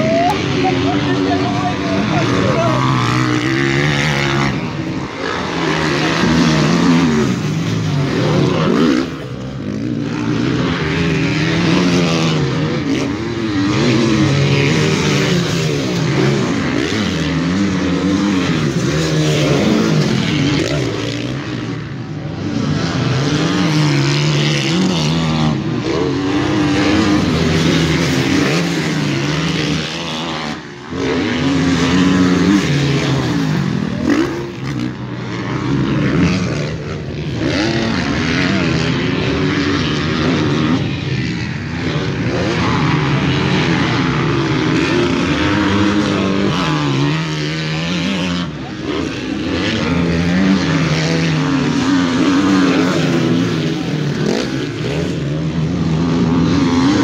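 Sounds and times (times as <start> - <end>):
motocross engines revving: 0.0 - 57.0.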